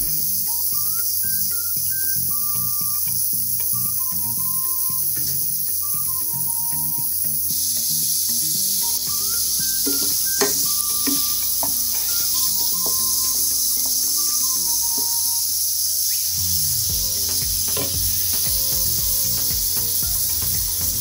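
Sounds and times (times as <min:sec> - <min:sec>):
meat sizzling in a pan: 0:00.0 - 0:21.0.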